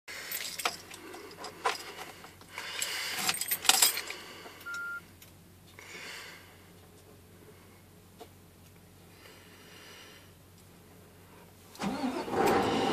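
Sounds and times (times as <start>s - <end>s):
keys jangling: 0.3s - 1.9s, 2.8s - 4.2s
short electronic beep: 4.7s - 5.0s.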